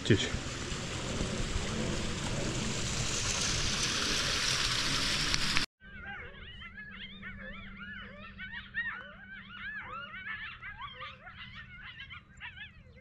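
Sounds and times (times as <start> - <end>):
rainwater rushing down rock: 0.0 - 5.7
coyotes yipping and howling: 5.8 - 13.0.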